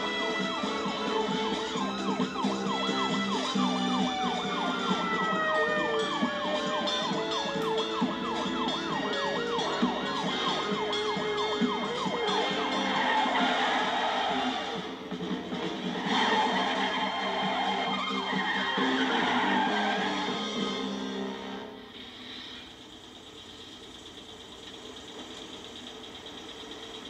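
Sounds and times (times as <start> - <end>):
siren tones gliding downward: 0.0 - 14.6
police siren yelping: 0.0 - 15.0, 15.6 - 21.3.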